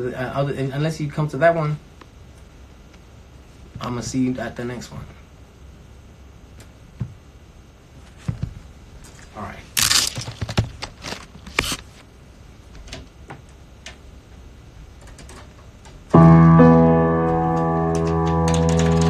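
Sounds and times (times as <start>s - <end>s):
keyboard chord held: 16.1s - 19.0s.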